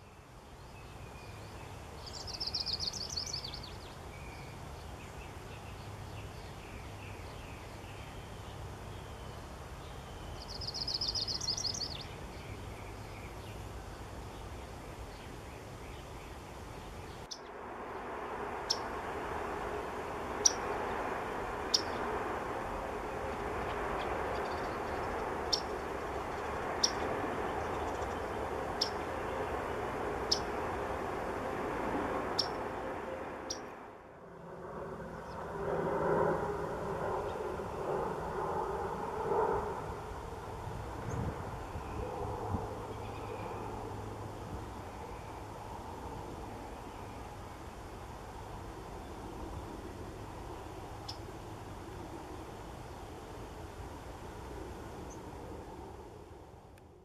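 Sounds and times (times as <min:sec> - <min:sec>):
bird singing rapid trill: 0:00.0 - 0:13.7, 0:20.4 - 0:20.7, 0:21.6 - 0:22.1, 0:24.0 - 0:30.6, 0:32.3 - 0:32.6
steady background noise: 0:00.0 - 0:57.0.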